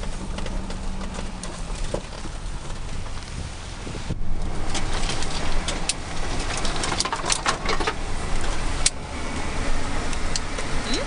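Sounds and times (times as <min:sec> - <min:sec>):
vehicle engine and road noise: 0:00.0 - 0:11.0
knocks and rattles: 0:04.4 - 0:09.0.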